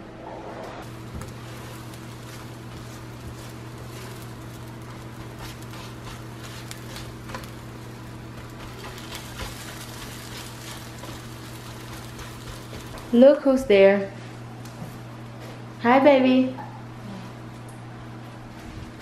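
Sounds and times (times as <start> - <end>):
steady low hum: 0.0 - 19.0
food sizzling on a griddle: 0.8 - 13.5
spatula scraping and tapping: 1.2 - 13.2.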